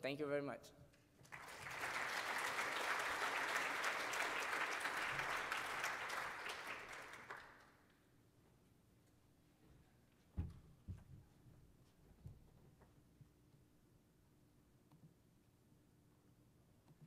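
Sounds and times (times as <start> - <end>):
audience applauding: 1.2 - 7.8.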